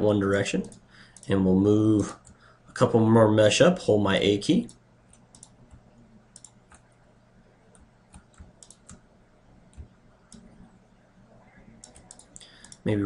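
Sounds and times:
faint low hum: 0:00.0 - 0:13.0
mouse and keyboard clicks: 0:04.7 - 0:06.9, 0:07.8 - 0:09.0, 0:11.8 - 0:12.8.

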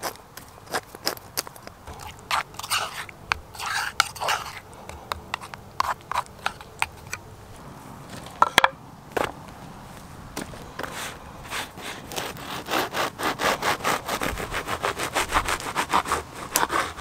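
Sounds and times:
spork scraping sauce in bowl: 0:01.9 - 0:07.2.

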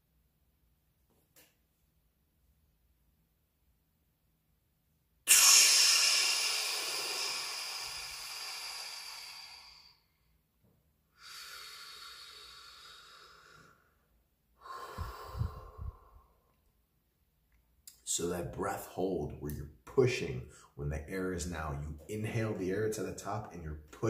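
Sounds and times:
person exhaling loudly: 0:05.3 - 0:10.1, 0:11.2 - 0:13.9, 0:14.6 - 0:16.4
deep breaths: 0:05.3 - 0:10.4, 0:11.1 - 0:16.6.

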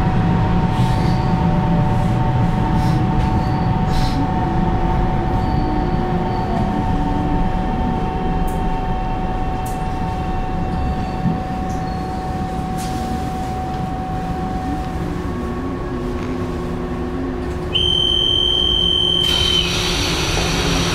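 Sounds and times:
train wheel rumble: 0:00.0 - 0:20.9
high electronic beep: 0:17.8 - 0:19.7.

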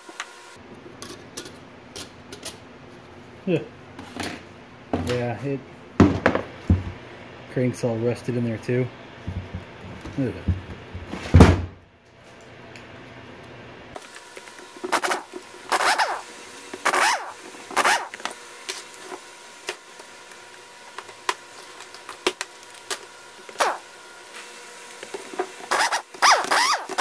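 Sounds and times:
air impact wrench bursts: 0:14.9 - 0:18.2, 0:23.6 - 0:23.8, 0:25.7 - 0:27.0.

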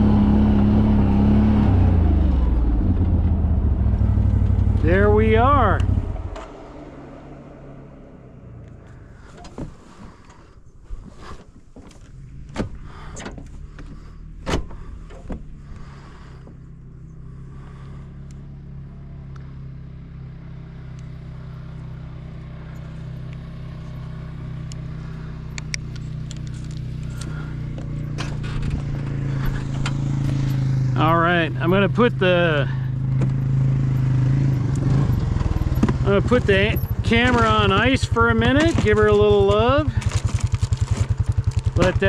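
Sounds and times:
utility vehicle engine running: 0:00.0 - 0:42.0
sharp knocks and clatters: 0:35.4 - 0:36.1.

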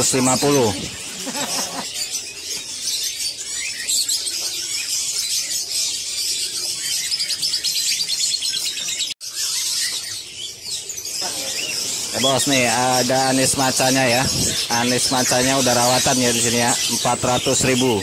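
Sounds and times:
songbirds chirping and singing: 0:00.0 - 0:18.0.

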